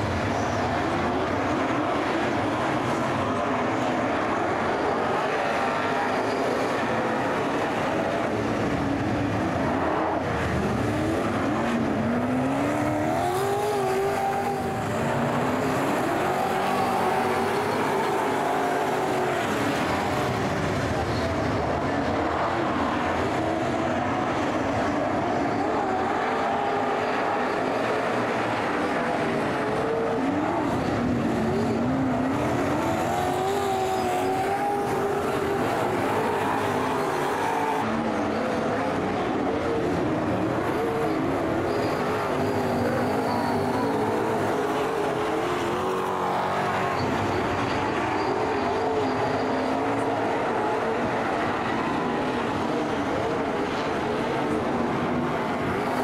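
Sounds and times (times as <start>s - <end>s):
race car engines revving: 0.0s - 56.0s.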